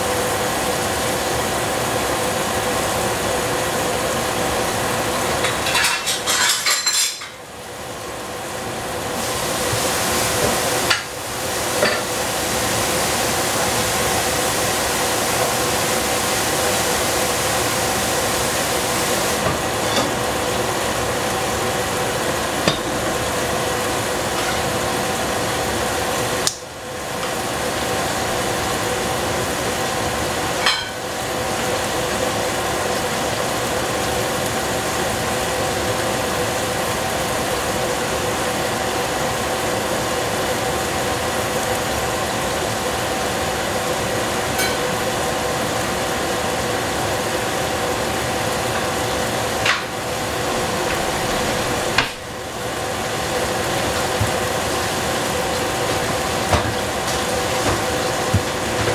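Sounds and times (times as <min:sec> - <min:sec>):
pot hissing on stove: 0:08.3 - 0:32.4, 0:42.5 - 0:58.9.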